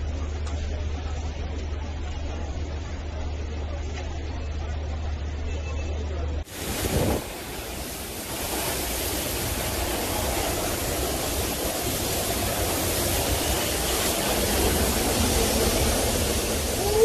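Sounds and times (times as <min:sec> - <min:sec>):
heavy rain beating down: 0:00.0 - 0:05.5, 0:06.3 - 0:17.0
strong wind rushing: 0:06.5 - 0:17.0.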